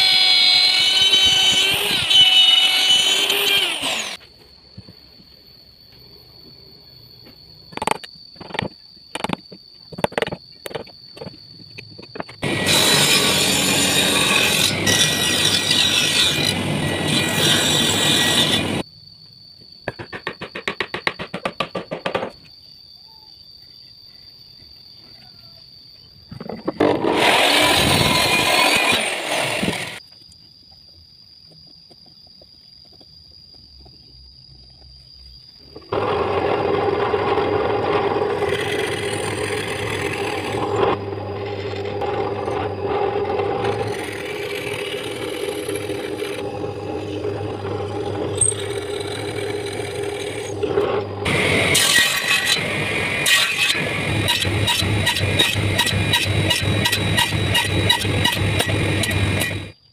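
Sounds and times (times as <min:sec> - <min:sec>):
electric drill boring wood: 0:00.0 - 0:04.2, 0:12.4 - 0:18.8, 0:26.8 - 0:30.0, 0:35.9 - 0:59.8
miter saw cutting wood: 0:00.0 - 0:04.2, 0:12.4 - 0:18.8, 0:26.8 - 0:30.0, 0:35.9 - 0:59.8
table saw cutting wood: 0:00.0 - 0:04.2, 0:12.4 - 0:18.8, 0:26.9 - 0:30.0, 0:35.9 - 0:59.8.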